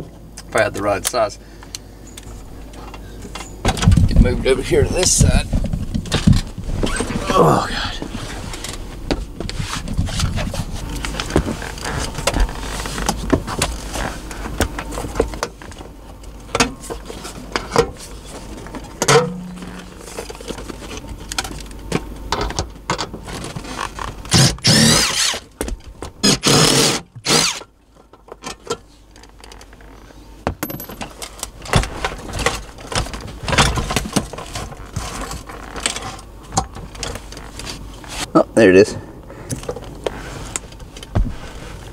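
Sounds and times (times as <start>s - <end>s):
clinking and knocking of metal tools: 30.5s - 31.3s.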